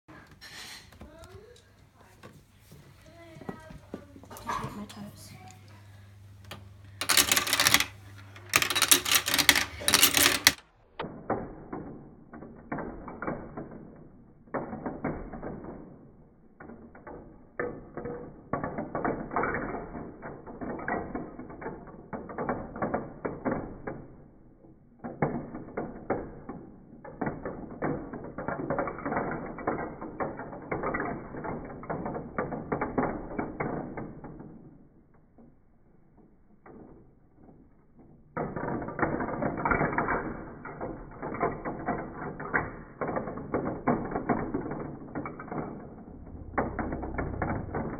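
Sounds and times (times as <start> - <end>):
plastic paddle wheels turning: 6.4 - 16.0, 36.6 - 47.9
metal marbles rattling down marble run: 6.5 - 15.9, 16.6 - 24.2, 25.0 - 34.8, 38.3 - 47.9.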